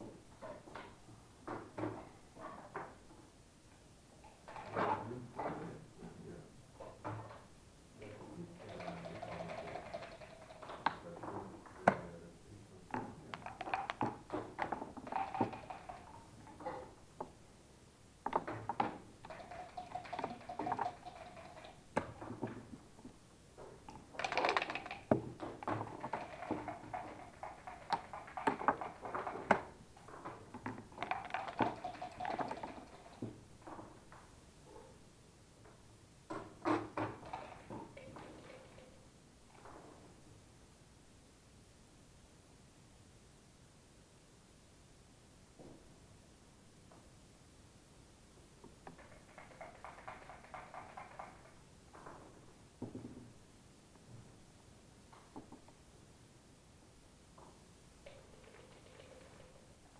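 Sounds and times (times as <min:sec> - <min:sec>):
dice rattling in cups: 0:08.7 - 0:10.8, 0:13.4 - 0:16.2, 0:19.2 - 0:22.3, 0:24.1 - 0:29.5, 0:30.8 - 0:33.2, 0:48.9 - 0:51.6
checkers clicking on board: 0:08.7 - 0:11.0, 0:13.4 - 0:16.2, 0:18.8 - 0:22.4, 0:24.1 - 0:29.7, 0:30.7 - 0:33.2, 0:36.8 - 0:38.8, 0:48.9 - 0:51.6.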